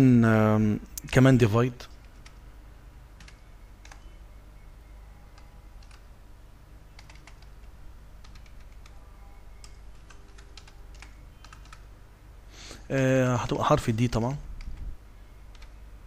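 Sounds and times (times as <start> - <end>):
steady low hum: 0.0 - 16.0
keyboard typing: 1.9 - 2.5, 3.2 - 4.2, 5.2 - 6.2, 6.9 - 11.9, 15.5 - 15.8.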